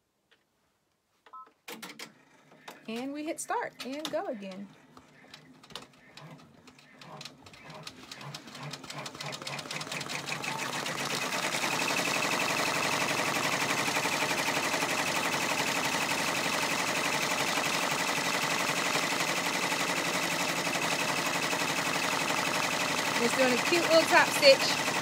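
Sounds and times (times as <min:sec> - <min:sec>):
embroidery machine stitching: 0:01.7 - 0:25.0.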